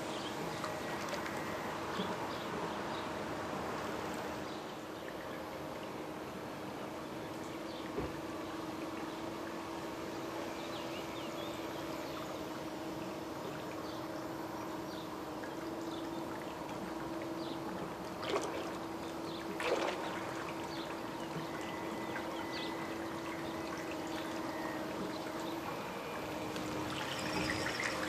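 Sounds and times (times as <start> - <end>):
model boat motor hum: 0.0 - 28.0
water trickling and lapping: 0.0 - 28.0.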